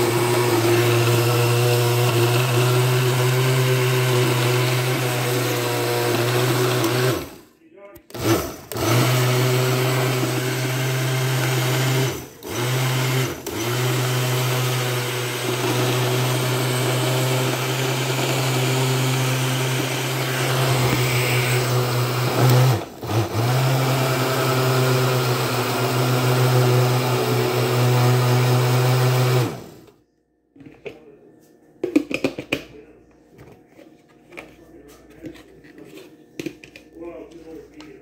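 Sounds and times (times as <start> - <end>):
blender motor running: 0.0 - 7.4, 8.1 - 29.9.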